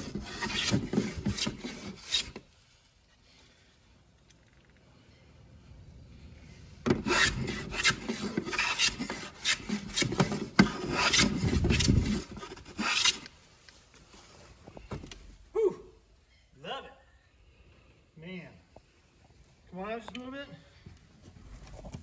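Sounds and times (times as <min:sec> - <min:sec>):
hand plane shaving wood: 0:00.0 - 0:02.5, 0:07.0 - 0:13.3.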